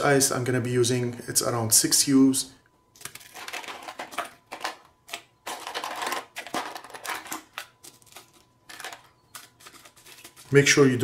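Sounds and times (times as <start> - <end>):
ice clattering into plastic container: 3.0 - 10.3.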